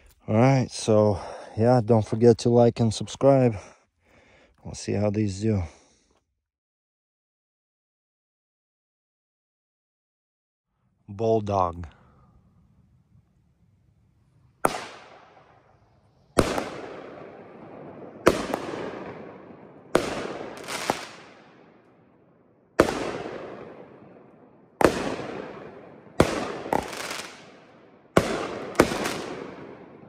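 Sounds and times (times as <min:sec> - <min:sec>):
firework bangs with echo: 0:14.6 - 0:15.6, 0:16.3 - 0:21.8, 0:22.8 - 0:30.0.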